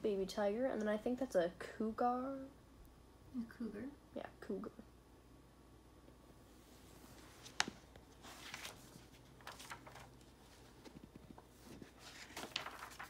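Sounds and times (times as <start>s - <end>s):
book pages rustling: 6.8s - 13.0s.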